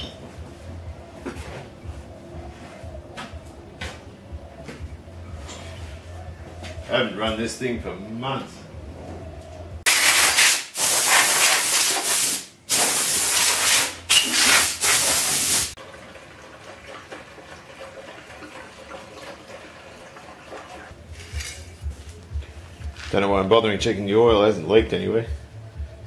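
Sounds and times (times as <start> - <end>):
air blow gun hissing: 9.9 - 15.8.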